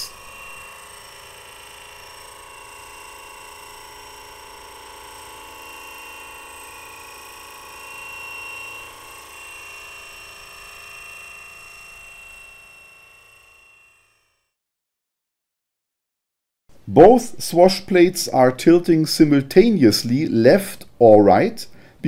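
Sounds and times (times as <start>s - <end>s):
model helicopter rotor whine: 0.0s - 14.6s.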